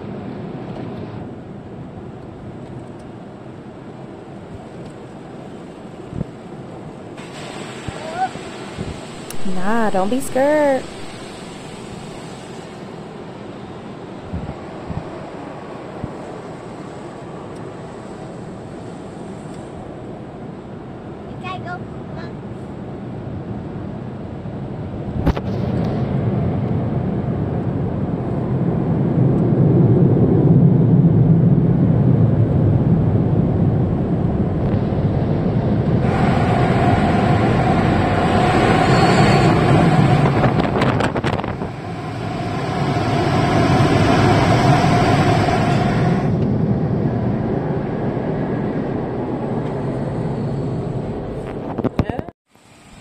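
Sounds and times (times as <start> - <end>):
car wash low rushing: 3.2 - 25.2, 25.9 - 51.7
drying blower hissing blast: 7.2 - 13.2, 36.0 - 46.4.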